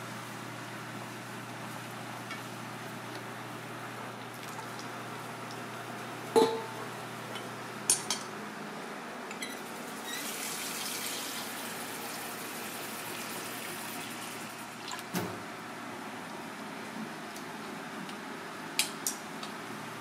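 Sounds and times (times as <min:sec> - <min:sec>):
metal bowl ringing from knock: 0:06.4 - 0:06.8.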